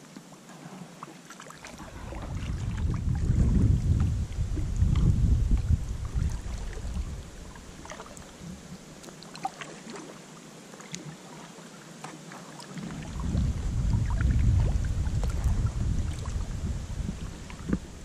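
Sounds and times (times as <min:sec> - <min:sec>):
paddle drips and splashes: 0:00.0 - 0:18.0
low rumble: 0:01.8 - 0:07.7, 0:12.9 - 0:18.0.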